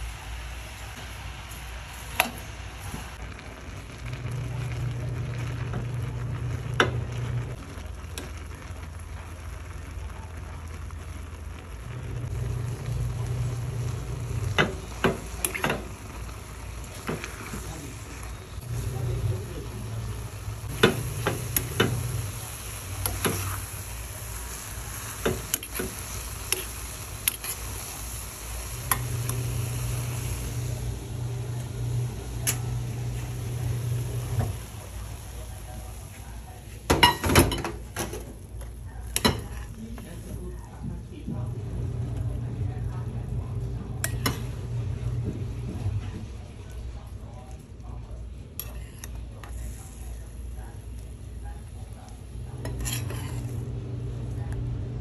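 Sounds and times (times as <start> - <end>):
apples sizzling in a pan: 0.0 - 55.0
low hum: 41.3 - 46.0.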